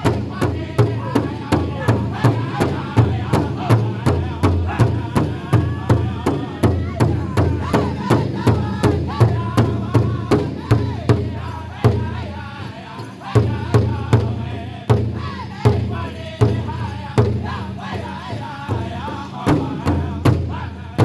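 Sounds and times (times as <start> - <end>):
large drum struck in unison: 0.0 - 12.3, 18.7 - 21.0
group singing in high voices: 0.0 - 21.0.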